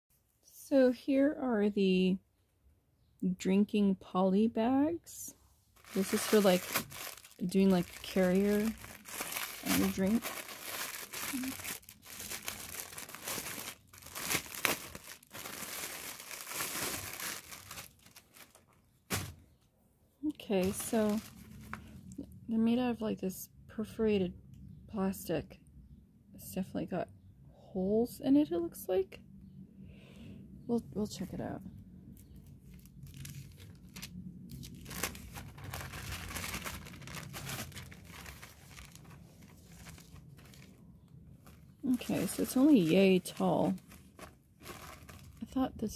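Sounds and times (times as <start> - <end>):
plastic wrapper crinkling and tearing: 5.8 - 19.3, 20.5 - 21.9, 32.2 - 45.6.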